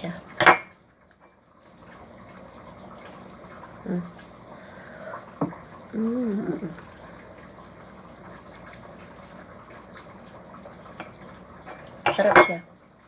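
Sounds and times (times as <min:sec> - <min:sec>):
person humming mmm: 0:06.0 - 0:06.8.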